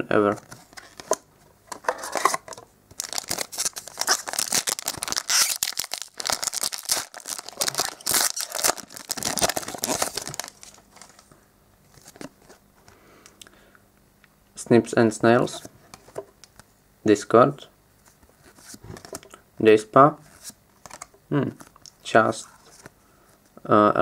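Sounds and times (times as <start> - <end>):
plastic wrapper crinkling and tearing: 2.1 - 11.3.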